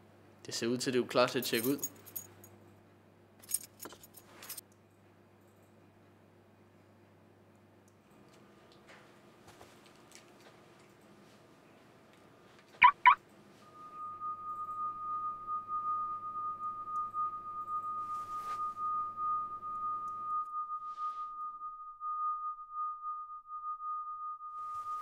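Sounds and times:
electronic chirps: 0:12.8 - 0:13.2
heart monitor flatline tone: 0:12.8 - 0:13.2.

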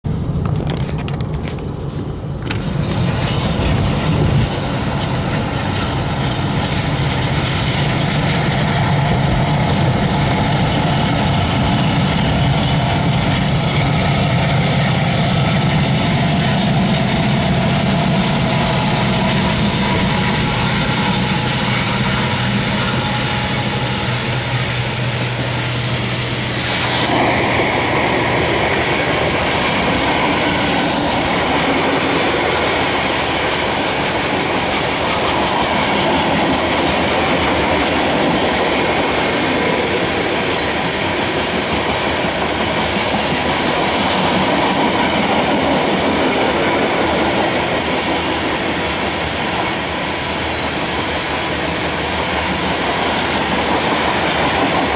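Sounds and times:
train cars rolling past: 0:00.0 - 0:54.9
car engine and tyre noise: 0:00.1 - 0:43.1.

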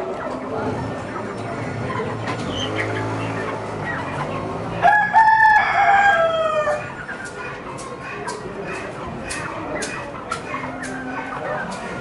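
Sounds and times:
chickens clucking: 0:00.0 - 0:12.0
rooster crowing: 0:04.8 - 0:06.8.

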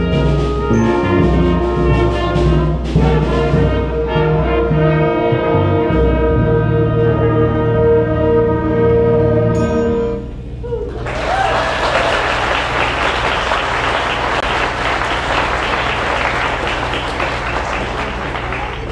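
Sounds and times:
audience applause: 0:11.0 - 0:18.9.

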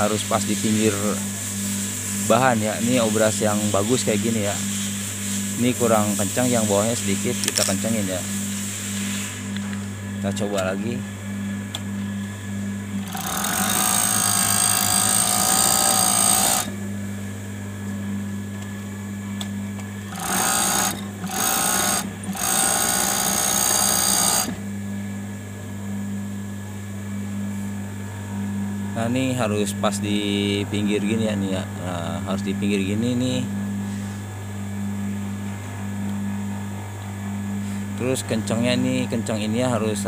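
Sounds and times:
motor hum: 0:00.0 - 0:40.0
overlock machine stitching: 0:13.0 - 0:16.7, 0:20.1 - 0:24.6.

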